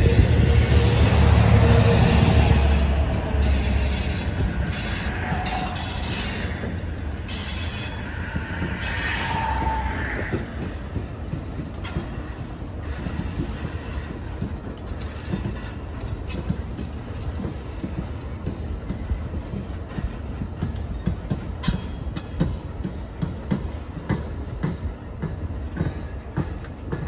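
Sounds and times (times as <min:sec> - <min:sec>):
high wheel squeal: 0:00.0 - 0:10.7
train cars rumbling past: 0:00.0 - 0:27.0
wheels clicking over rail joints: 0:00.0 - 0:27.0.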